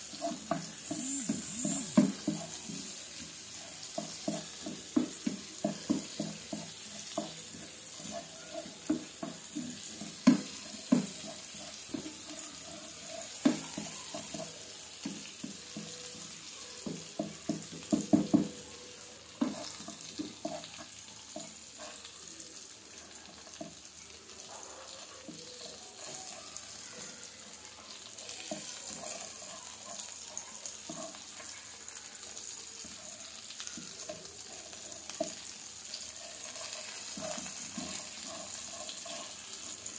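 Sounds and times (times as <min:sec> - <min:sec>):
wooden spatula scraping pan: 0:00.0 - 0:16.4, 0:25.6 - 0:26.8, 0:28.2 - 0:31.5, 0:33.8 - 0:39.9
fish and onions sizzling in oil: 0:00.0 - 0:39.9.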